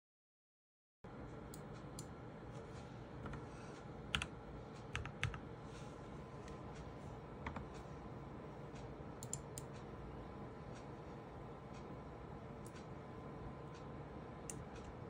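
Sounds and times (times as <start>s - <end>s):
keyboard and mouse clicks: 4.1s - 5.4s, 7.4s - 7.8s, 8.8s - 9.8s.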